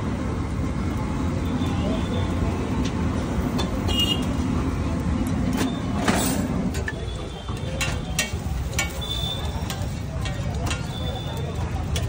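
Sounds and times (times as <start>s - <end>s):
spatula scraping iron griddle: 6.0s - 6.6s, 7.8s - 10.9s.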